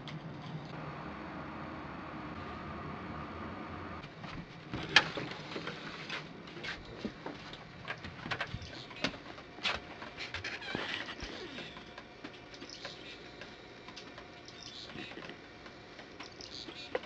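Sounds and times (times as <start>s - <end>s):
footsteps: 4.0s - 12.7s.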